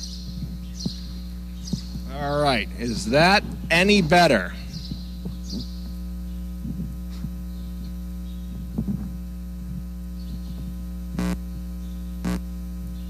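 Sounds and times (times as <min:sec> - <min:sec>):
microphone handling knocks: 0:00.0 - 0:02.2, 0:04.7 - 0:06.0, 0:06.6 - 0:12.4
electrical mains hum: 0:00.0 - 0:13.0.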